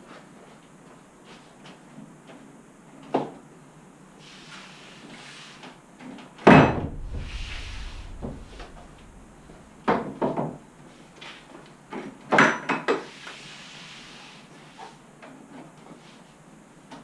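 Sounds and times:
short low rumble: 6.6 - 10.9.

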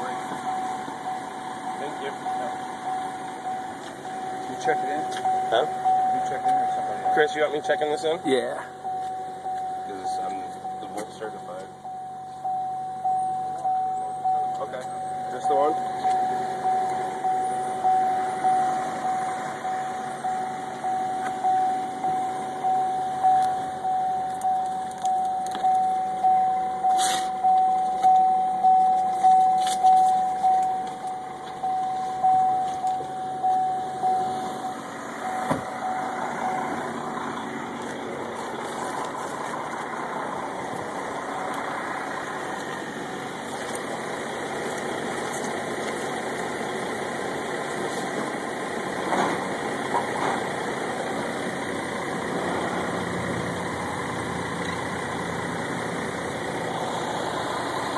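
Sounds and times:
car warning chime: 0.0 - 38.8
steady engine-like hum: 0.0 - 57.9.

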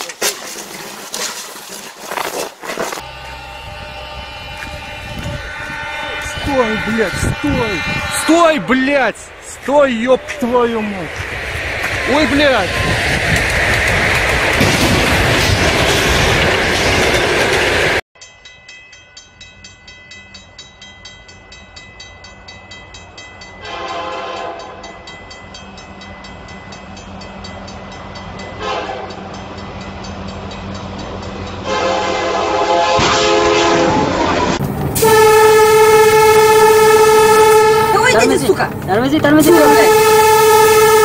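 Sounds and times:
train horn blasts: 3.0 - 10.4, 23.6 - 24.9, 28.5 - 29.3, 31.6 - 38.4, 39.4 - 41.0
locomotive horn steady blast: 3.0 - 10.8, 23.6 - 24.9, 28.5 - 29.3, 31.6 - 38.4, 39.4 - 41.0
railroad crossing bell ringing: 3.0 - 11.1, 18.2 - 32.6.

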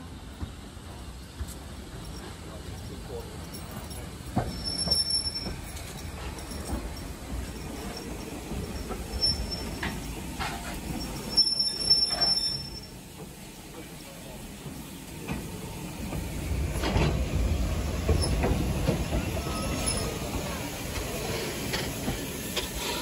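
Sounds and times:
steam locomotive wheels rumbling: 0.0 - 23.0
high-pitched wheel squeal: 11.3 - 12.9.

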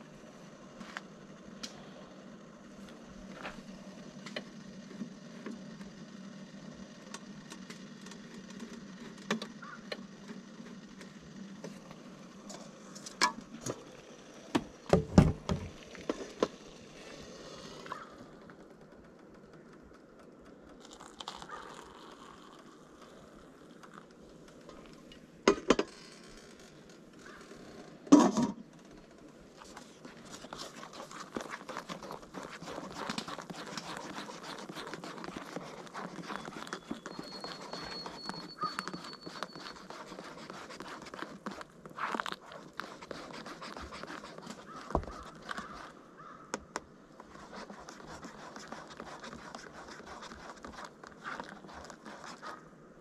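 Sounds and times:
hot plate humming: 0.0 - 53.0
plastic spoon stirring paper cup: 20.8 - 24.1, 29.6 - 46.3, 47.2 - 52.7.

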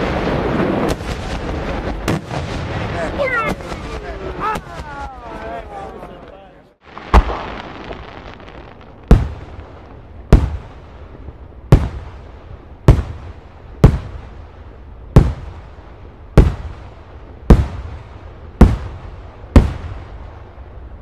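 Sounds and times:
firework shells bursting: 6.9 - 10.8.

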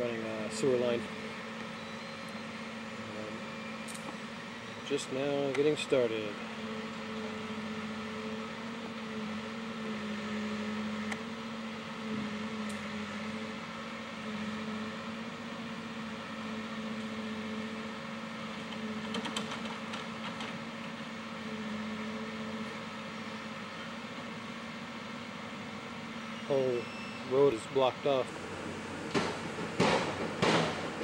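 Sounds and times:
engine droning: 0.0 - 31.0
clatter of knocks: 29.1 - 31.0.

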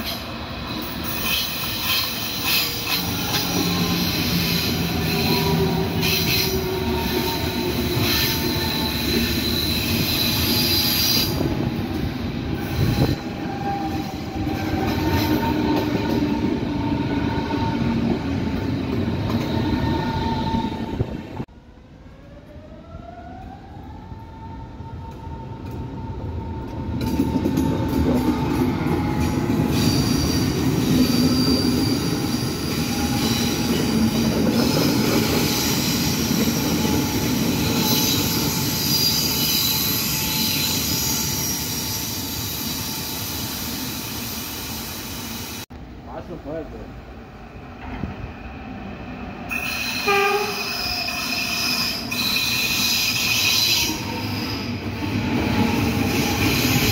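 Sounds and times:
train wheels rumbling: 0.0 - 21.5, 22.2 - 56.9
wheel squeal: 29.2 - 44.3.

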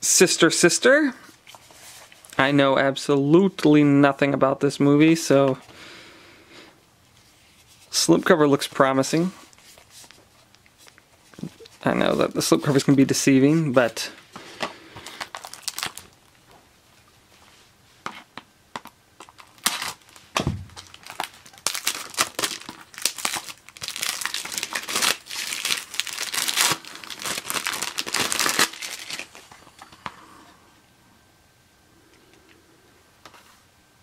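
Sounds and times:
plastic wrapping crinkling: 14.4 - 16.4, 19.2 - 29.9
soft thump: 20.4 - 20.8.

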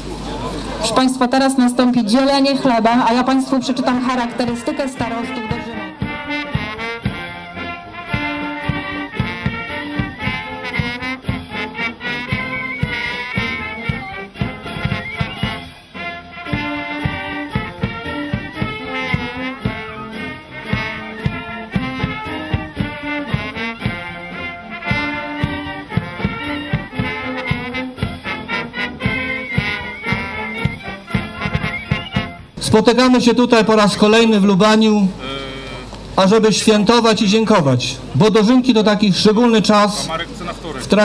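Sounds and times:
brass band playing a march: 0.0 - 41.0
bass drum beat: 3.1 - 32.8.

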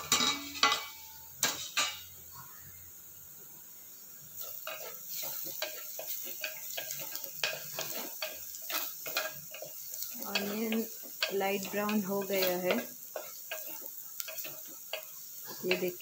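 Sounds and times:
onions sizzling in oil: 0.0 - 16.0
wooden spatula scraping pot: 4.4 - 16.0.

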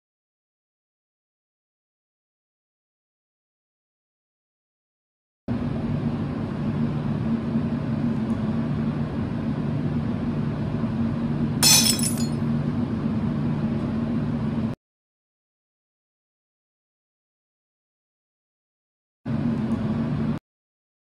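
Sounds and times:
clinking clatter: 11.6 - 12.4.

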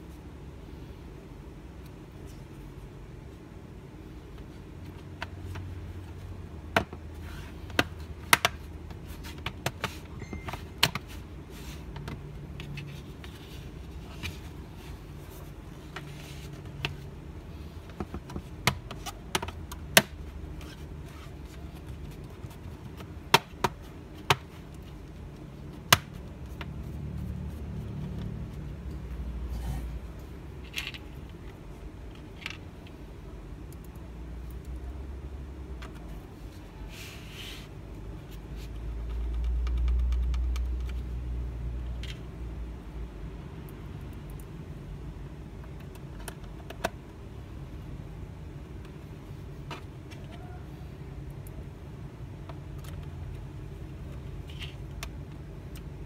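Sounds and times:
plastic rubbing and handling: 2.1 - 33.0.

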